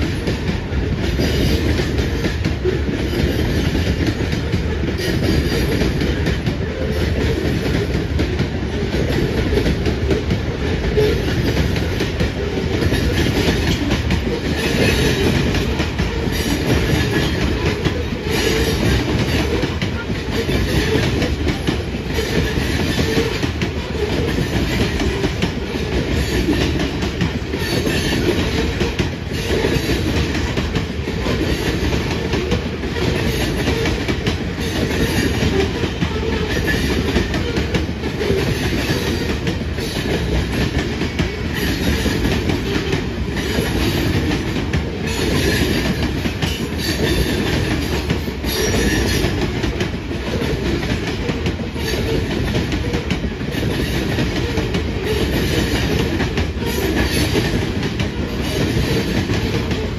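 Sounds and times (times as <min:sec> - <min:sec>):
train rumble: 0:00.0 - 0:59.9
train wheels clattering on rails: 0:00.0 - 0:59.9.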